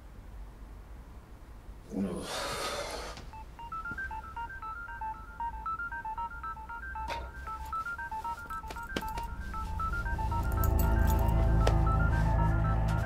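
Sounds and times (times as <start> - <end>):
touch-tone dialing beeps: 3.3 - 13.0.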